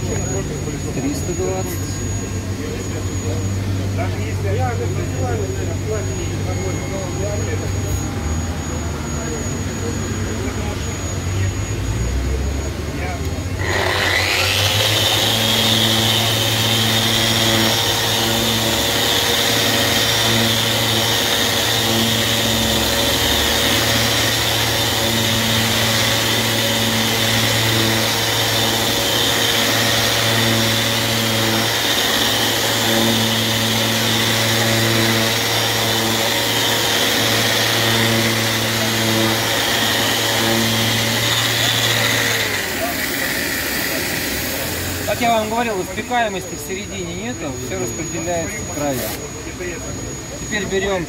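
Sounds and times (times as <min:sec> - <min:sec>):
orbital sander whining: 0:00.0 - 0:51.0.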